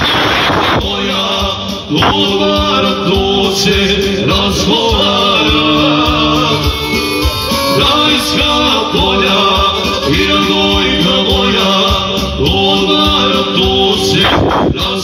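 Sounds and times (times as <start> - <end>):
man singing into microphone: 0.0 - 15.0
electronic keyboard playing: 4.9 - 12.0.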